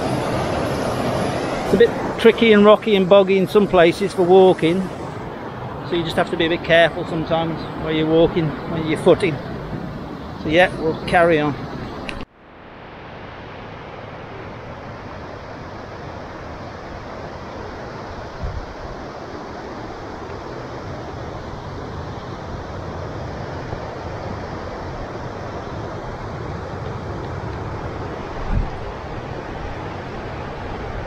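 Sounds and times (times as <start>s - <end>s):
river rushing over rocks: 0.0s - 11.9s.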